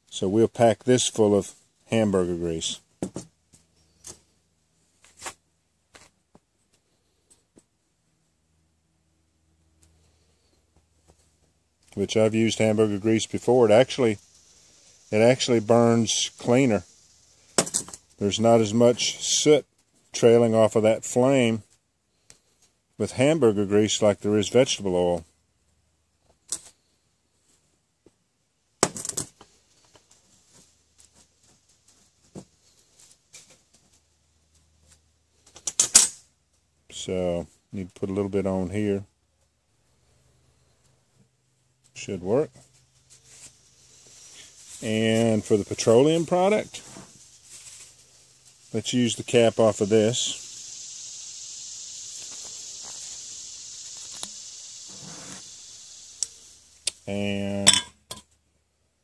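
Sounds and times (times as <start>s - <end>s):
insects buzzing: 9.9s - 24.8s, 41.5s - 58.1s.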